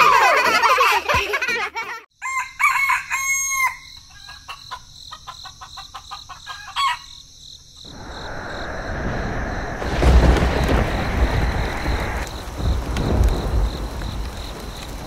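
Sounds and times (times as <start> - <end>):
rooster crowing: 2.2 - 4.0
rain hissing: 7.9 - 15.0.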